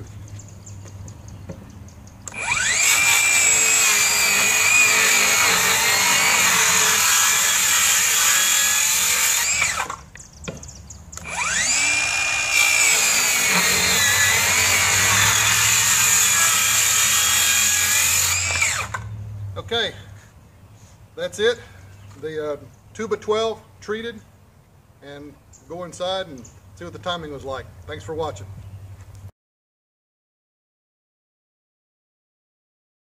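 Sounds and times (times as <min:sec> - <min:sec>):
circular saw cutting wood: 0:02.3 - 0:10.1, 0:11.2 - 0:19.1.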